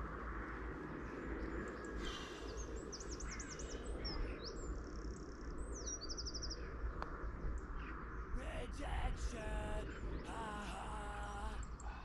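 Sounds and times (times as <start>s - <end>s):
songbird chirping and trilling: 0.0s - 12.0s.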